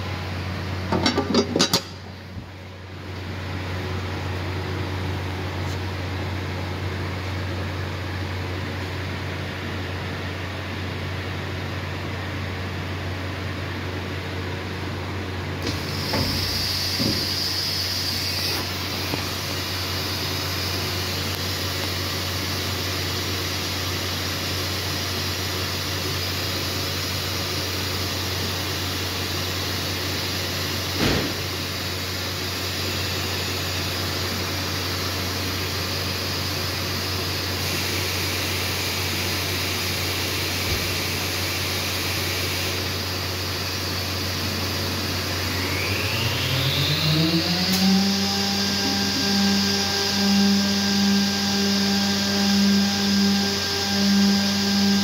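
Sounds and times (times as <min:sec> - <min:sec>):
machine hum and fan noise: 0:00.0 - 0:55.0
high whine: 0:15.4 - 0:55.0.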